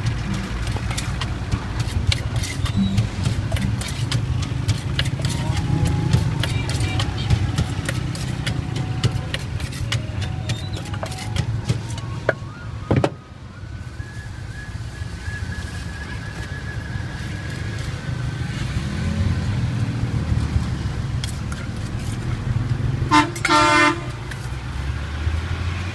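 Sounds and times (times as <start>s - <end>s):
street traffic rumble: 0.0s - 25.9s
wooden pestle knocking in mortar: 0.3s - 12.0s
vehicle horn tooting: 5.4s - 7.9s, 23.1s - 24.2s.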